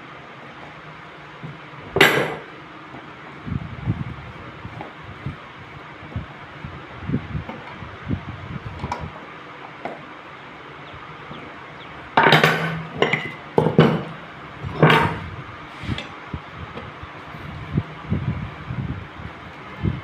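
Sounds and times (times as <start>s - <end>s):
metal tools clanking on workbench: 12.2s - 14.1s, 14.7s - 15.2s.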